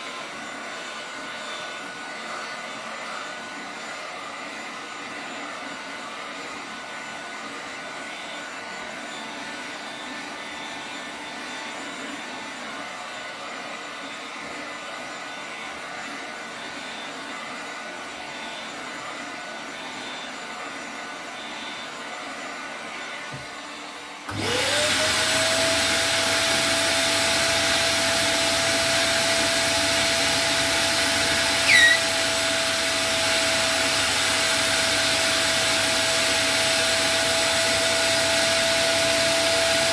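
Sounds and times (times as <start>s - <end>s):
vacuum cleaner motor whine: 0.0s - 39.9s
loud falling squeak: 31.6s - 32.1s.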